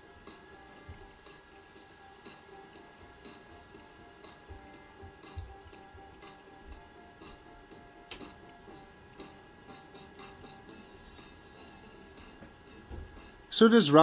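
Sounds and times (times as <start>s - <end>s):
high test tone gliding downward: 0.0s - 14.0s.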